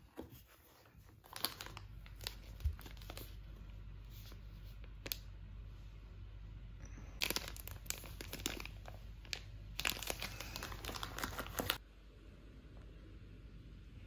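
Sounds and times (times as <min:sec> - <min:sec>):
packet crinkling: 0:01.2 - 0:03.4, 0:07.2 - 0:11.8.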